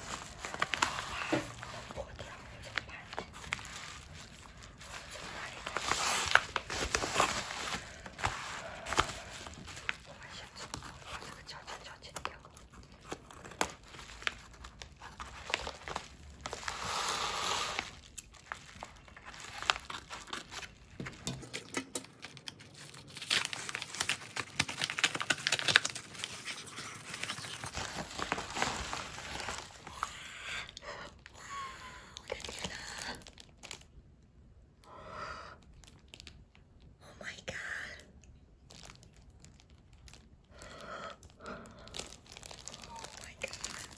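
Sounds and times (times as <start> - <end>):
plastic mailer bag tearing: 0.0 - 11.4, 22.2 - 30.0, 41.8 - 43.9
plastic wrap rustling: 0.0 - 30.2, 32.3 - 33.9, 35.8 - 36.4, 38.7 - 43.9.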